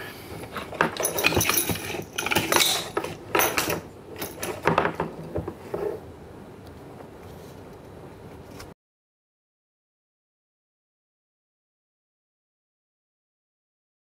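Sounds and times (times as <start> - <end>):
parts clattering on a table: 0.3 - 6.0.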